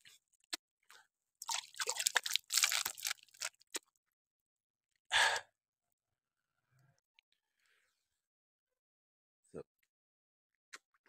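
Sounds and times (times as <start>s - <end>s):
water splashing: 1.4s - 3.6s
water dripping: 1.4s - 3.8s.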